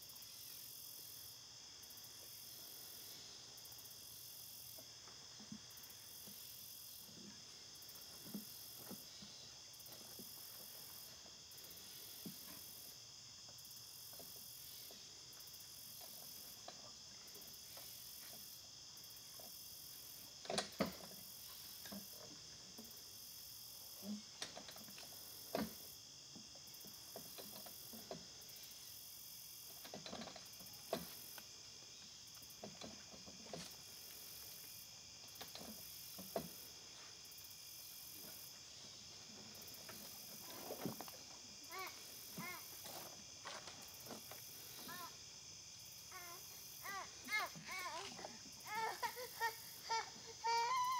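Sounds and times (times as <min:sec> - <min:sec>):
crickets and insects chirping: 0:00.0 - 0:50.9
high shrill pulsing insect: 0:34.2 - 0:50.9.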